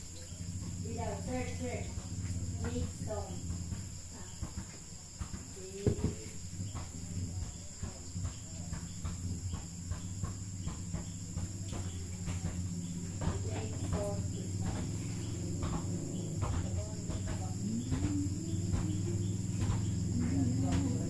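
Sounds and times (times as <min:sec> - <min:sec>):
crickets chirring: 0:00.0 - 0:21.0
low steady hum: 0:05.6 - 0:21.0.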